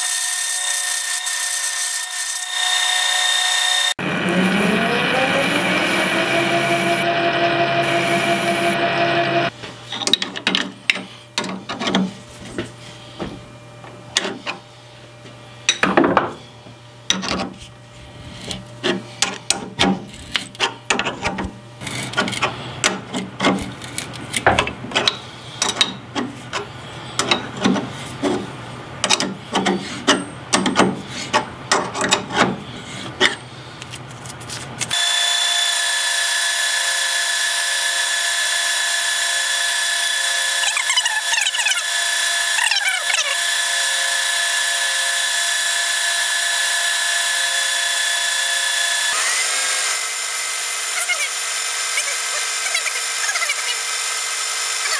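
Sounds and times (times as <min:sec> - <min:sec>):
lathe running: 0:00.0 - 0:09.6, 0:34.9 - 0:54.9
tap wrench clicking and scraping: 0:25.0 - 0:28.4, 0:29.0 - 0:32.5.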